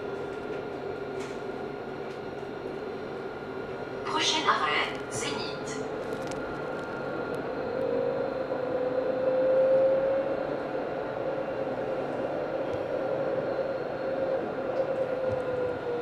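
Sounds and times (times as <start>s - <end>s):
tram motor whine: 0.0s - 16.0s
tram rolling noise: 0.0s - 16.0s.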